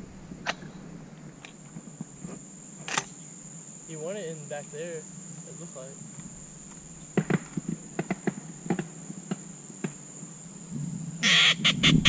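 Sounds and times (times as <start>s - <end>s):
high-pitched insect drone: 0.5s - 12.0s
rustling noise burst: 10.7s - 12.0s.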